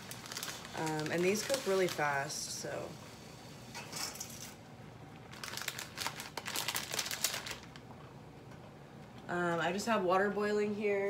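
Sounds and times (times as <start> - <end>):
plastic packaging crinkling: 0.0 - 2.4, 5.1 - 8.1.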